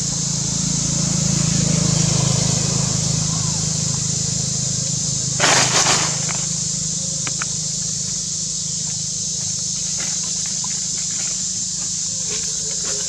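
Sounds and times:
dry leaves rustling and crunching: 0:05.3 - 0:06.7.

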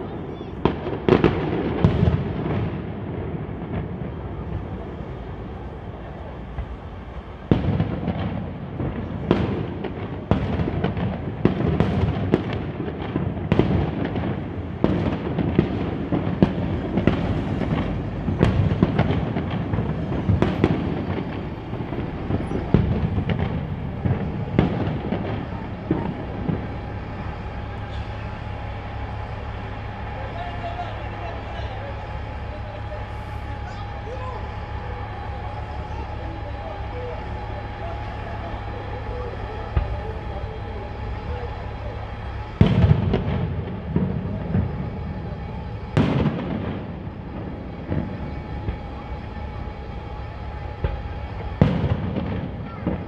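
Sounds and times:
fireworks bangs: 0:00.0 - 0:53.0
low rumble: 0:14.1 - 0:53.0.

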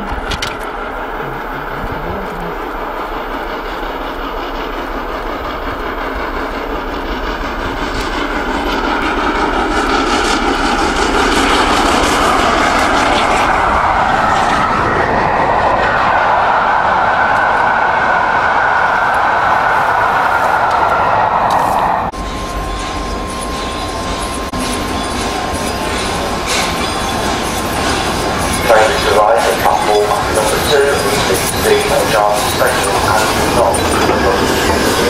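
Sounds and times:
steam train passing at speed: 0:00.0 - 0:35.0
coaches rolling by: 0:23.8 - 0:35.0.

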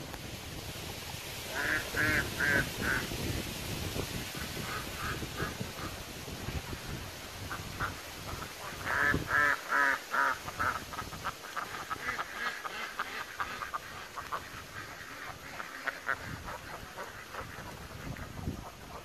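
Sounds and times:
ducks quacking: 0:01.5 - 0:03.1, 0:04.4 - 0:19.0.

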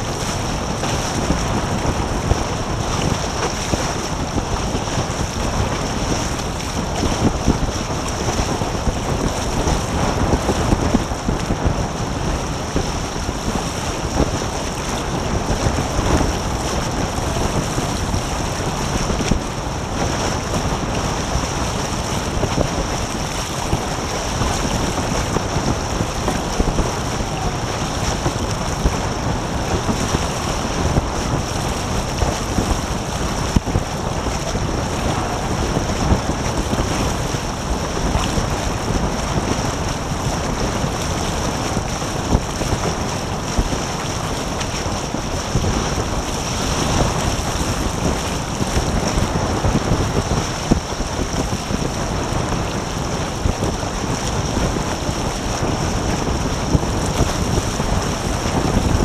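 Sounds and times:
water rushing past hulls: 0:00.0 - 0:59.0
wind buffeting microphone: 0:00.0 - 0:59.0.

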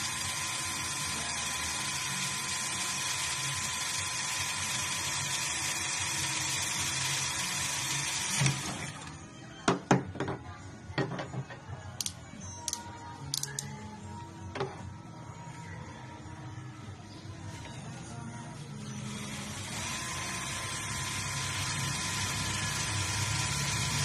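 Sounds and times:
cordless drill boring: 0:00.0 - 0:09.1, 0:19.0 - 0:24.0.

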